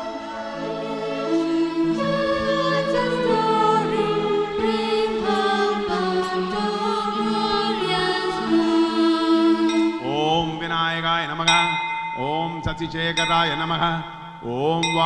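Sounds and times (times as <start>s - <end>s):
group singing chant-like melody: 0.0s - 10.6s.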